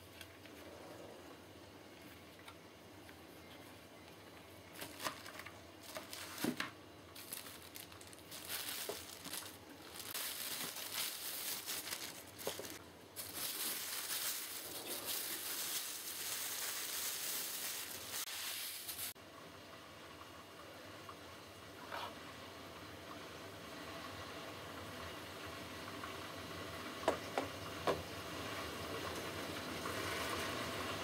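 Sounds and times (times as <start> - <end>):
plastic bag crinkling: 4.7 - 19.2.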